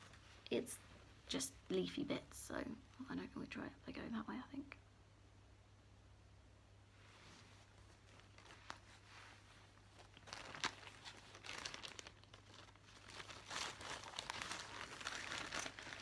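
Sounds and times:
paper and fabric rustling: 7.0s - 16.0s.

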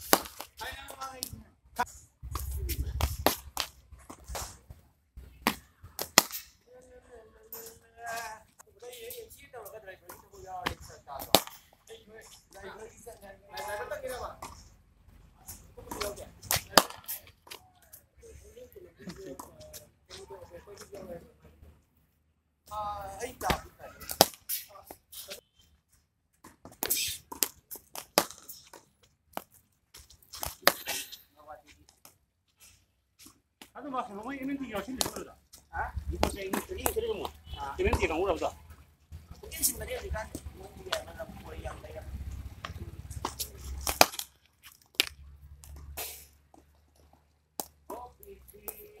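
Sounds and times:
ball bouncing on concrete: 2.2s - 6.5s, 34.8s - 46.8s, 47.5s - 48.0s
bat striking cricket ball: 10.7s - 11.7s, 43.2s - 44.4s
ball rebounding off brick wall: 42.1s - 46.0s.

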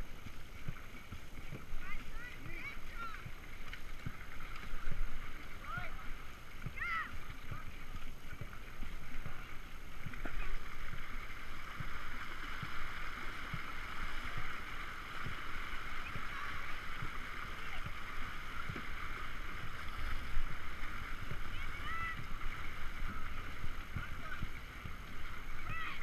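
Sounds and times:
paddles splashing and knocking: 0.0s - 26.0s
water rushing along hull: 0.0s - 26.0s.

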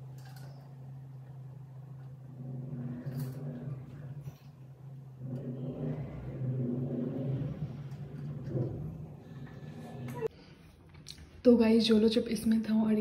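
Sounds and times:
motor humming: 0.0s - 10.3s.

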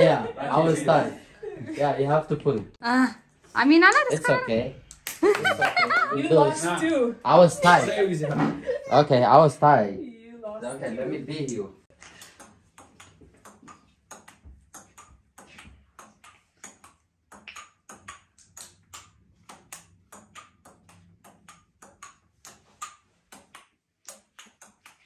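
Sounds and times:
ping-pong ball clicking: 12.0s - 25.0s.

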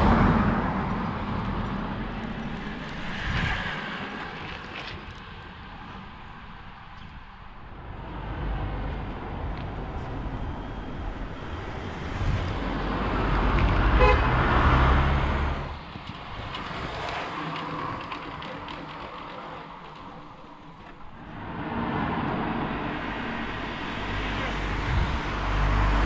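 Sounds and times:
road vehicle passing: 0.0s - 6.8s, 7.5s - 26.0s
short high horn toot: 14.0s - 14.4s.

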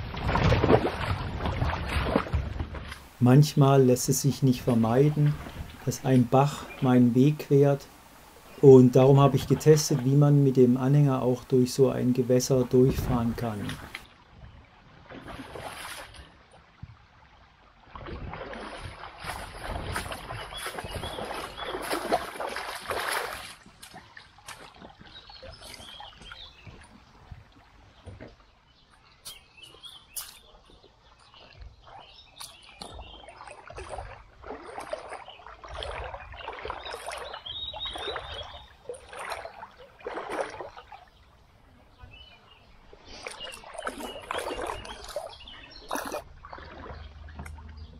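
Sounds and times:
water splashing around wheels: 0.0s - 3.3s, 17.6s - 27.0s, 31.2s - 41.2s, 43.0s - 47.9s.

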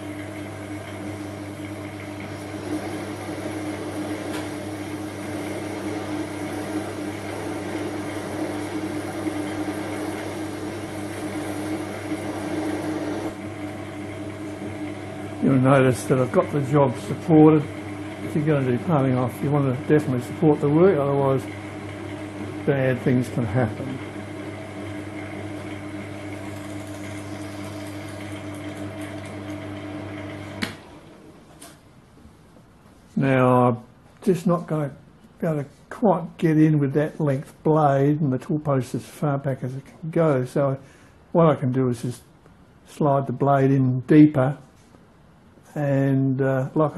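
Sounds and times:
lathe motor and gear hum: 0.0s - 31.8s
lathe switch click: 30.6s - 30.9s.

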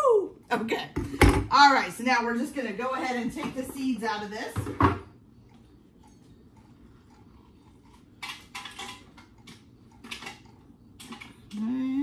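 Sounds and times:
kitchen utensils clinking: 8.2s - 11.6s.

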